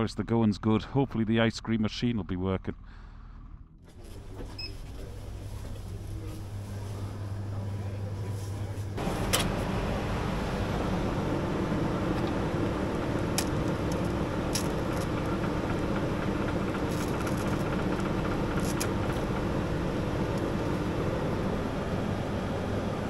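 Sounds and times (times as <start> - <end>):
ice cream machine humming: 3.8 - 23.0.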